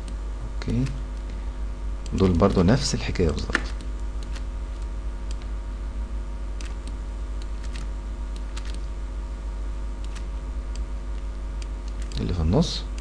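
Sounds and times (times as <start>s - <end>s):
low electrical hum: 0.0s - 13.0s
computer mouse clicks: 2.0s - 5.5s, 6.6s - 8.9s, 10.0s - 12.3s.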